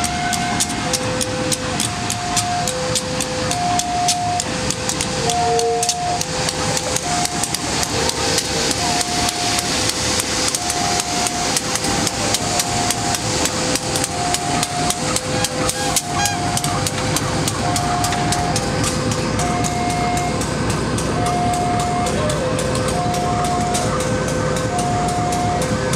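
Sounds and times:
crossing bell ringing: 0.0s - 25.9s
two-note electronic tone: 3.4s - 7.6s, 19.4s - 20.4s.

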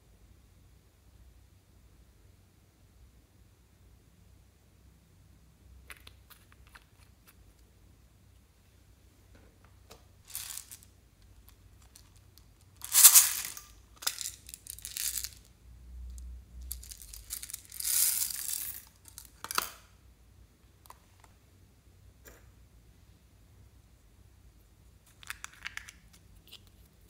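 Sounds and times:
beads and plastic case clattering: 10.2s - 15.4s, 16.6s - 19.7s
beads pouring into slime: 10.3s - 10.8s, 12.8s - 15.4s, 16.6s - 19.2s.

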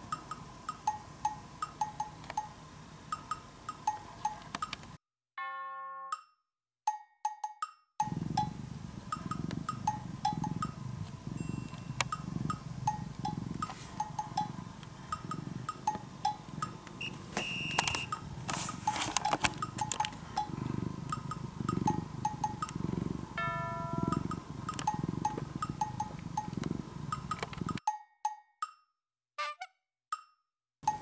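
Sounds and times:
cat purring: 8.0s - 27.8s.

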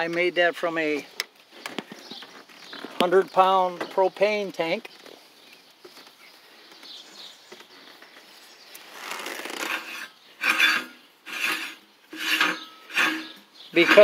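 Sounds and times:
metal cap grating on threads: 9.0s - 14.0s.

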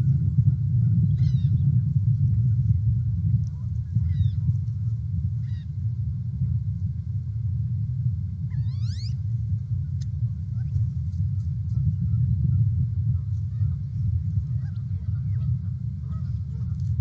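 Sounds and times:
steady low rumble: 0.0s - 17.0s
rising bird call: 8.5s - 9.2s.

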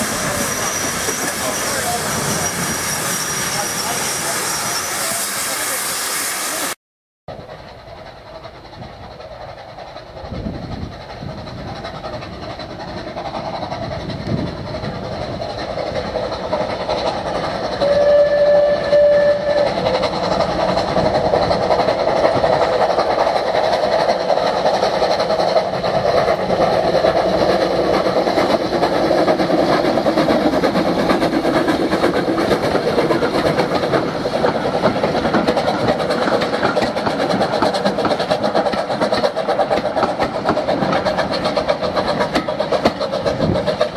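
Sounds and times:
train coaches clattering: 0.0s - 5.9s, 7.3s - 43.9s
steam locomotive working: 0.0s - 43.9s
steam whistle blast: 17.8s - 19.8s.

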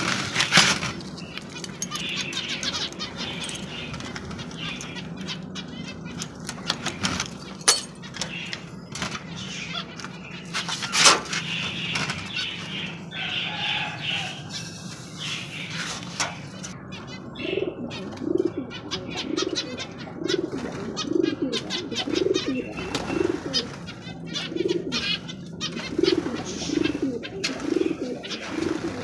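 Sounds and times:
birds flapping wings: 0.0s - 2.2s, 22.0s - 29.0s.

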